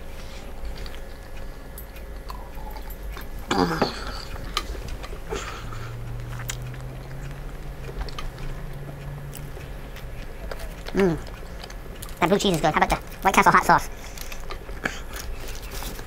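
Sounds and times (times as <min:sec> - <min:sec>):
low steady hum: 0:00.0 - 0:16.0
person chewing: 0:00.4 - 0:16.0
vocal exclamation: 0:10.4 - 0:11.3.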